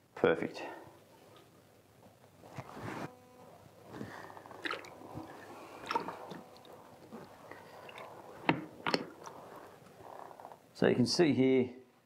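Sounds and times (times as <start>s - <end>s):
squishy rustling of plastic bucket: 4.0s - 10.6s.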